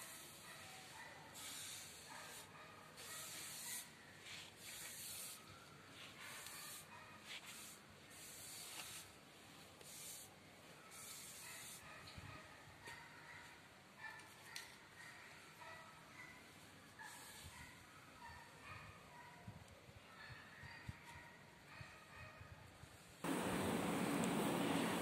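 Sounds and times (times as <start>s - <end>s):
brush swishing on wood: 0.0s - 5.4s, 6.0s - 9.2s.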